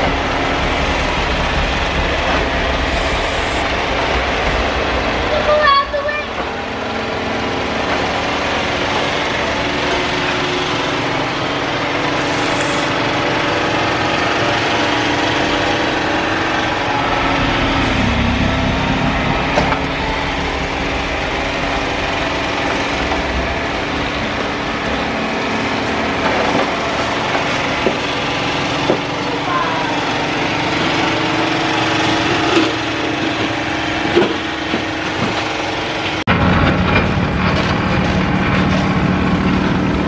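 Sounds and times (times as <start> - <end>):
tractor engine running: 0.0 - 29.4.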